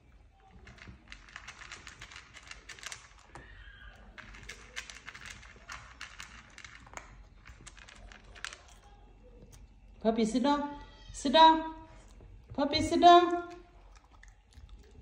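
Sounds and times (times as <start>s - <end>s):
kittens' claws clicking and scratching: 0.4s - 9.9s.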